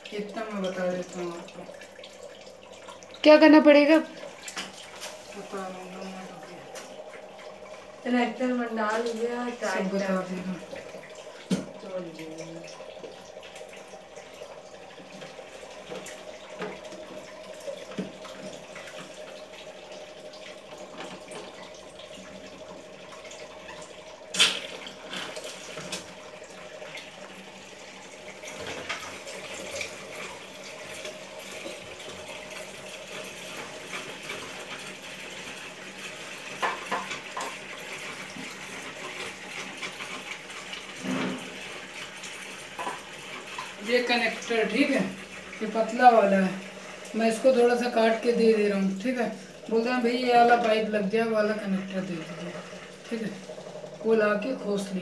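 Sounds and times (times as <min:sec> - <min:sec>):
running water: 0:00.0 - 0:55.0.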